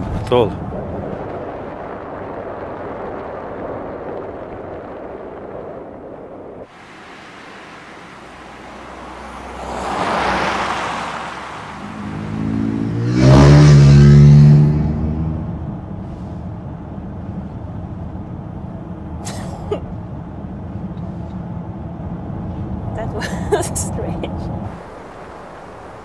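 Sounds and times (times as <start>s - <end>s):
road noise: 0.0s - 26.0s
car tyres passing: 6.6s - 19.2s.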